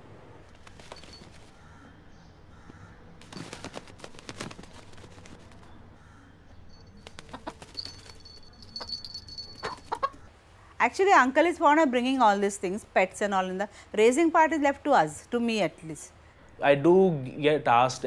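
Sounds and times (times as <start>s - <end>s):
rooster clucking: 7.2s - 7.7s, 9.6s - 10.3s
thin steady high tone: 7.8s - 9.9s.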